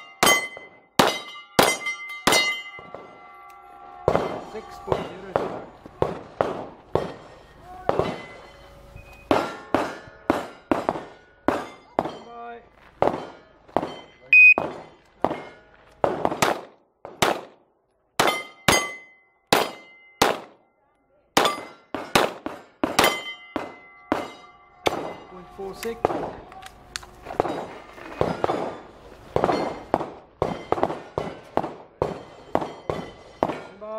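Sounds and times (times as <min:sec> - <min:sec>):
ring of steel target: 0:00.0 - 0:03.5, 0:07.0 - 0:12.4, 0:18.2 - 0:20.4, 0:21.4 - 0:26.3
pistol shots: 0:04.1 - 0:07.2, 0:13.0 - 0:20.6, 0:21.4 - 0:28.8
loud electronic beep: 0:14.3 - 0:14.6.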